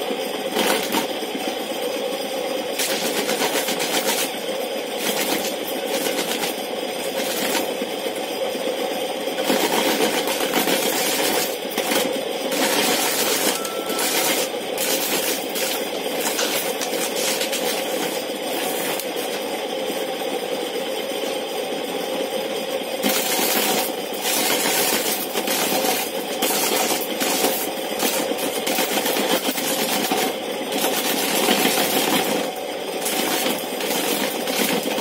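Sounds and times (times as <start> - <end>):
corn sheller motor hum: 0.0 - 35.0
corn kernels rattling: 12.5 - 19.2.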